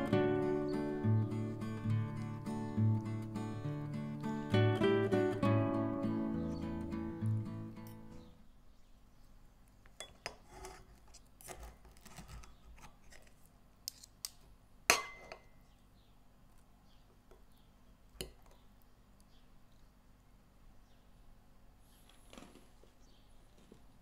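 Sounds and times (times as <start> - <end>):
cutlery scraping a plate: 10.0 - 12.5.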